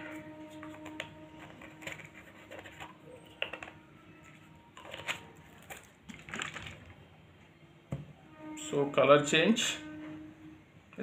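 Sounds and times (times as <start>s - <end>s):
plastic bottles and caps clicking: 0.4s - 7.0s.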